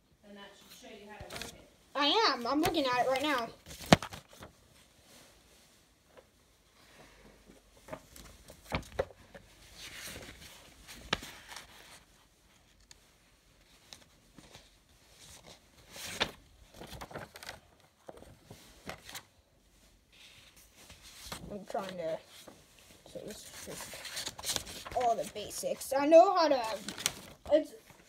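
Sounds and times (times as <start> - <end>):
paper rustling: 0.8 - 4.9, 7.8 - 19.3, 19.9 - 28.0.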